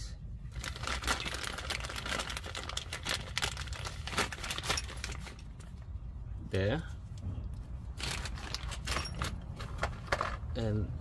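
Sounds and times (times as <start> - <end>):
plastic bag crinkling: 0.5 - 5.5.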